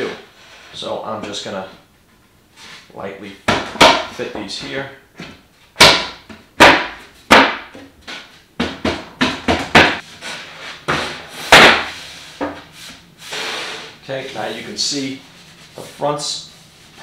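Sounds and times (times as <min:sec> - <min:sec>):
wooden panels knocking: 0:03.5 - 0:04.2, 0:05.2 - 0:10.0.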